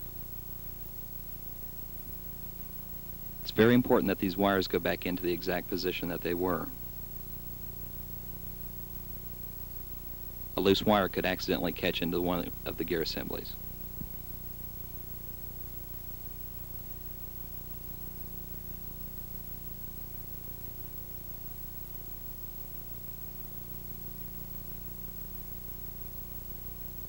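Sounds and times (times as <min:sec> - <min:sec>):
low mains hum: 0:00.0 - 0:27.0
tape hiss: 0:00.0 - 0:27.0.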